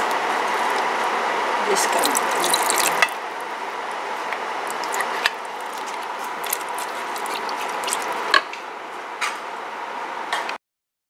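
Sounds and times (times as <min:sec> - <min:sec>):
wooden spoon stirring pot: 0:00.0 - 0:03.2, 0:04.7 - 0:08.4
pot braising with hiss and pops: 0:00.0 - 0:03.4, 0:04.6 - 0:08.6.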